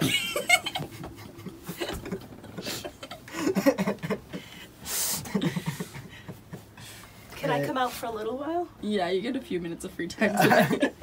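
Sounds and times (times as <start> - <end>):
people laughing: 0.0 - 4.6, 5.2 - 6.8, 10.3 - 11.0.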